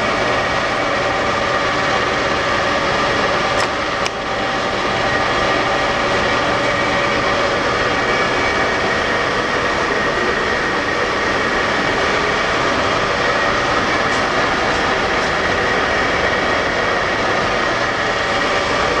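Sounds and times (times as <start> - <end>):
machinery drone: 0.0 - 19.0.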